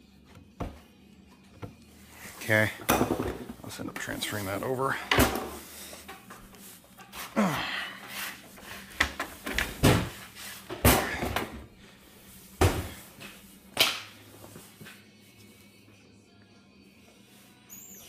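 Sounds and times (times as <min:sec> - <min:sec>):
parts and tools clunking on floor: 0:02.7 - 0:04.3, 0:04.9 - 0:07.4, 0:08.8 - 0:11.7.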